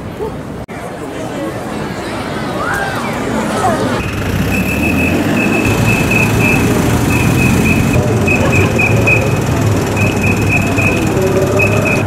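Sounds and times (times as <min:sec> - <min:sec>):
street traffic: 0:00.0 - 0:12.0
quick high beeps: 0:04.0 - 0:12.0.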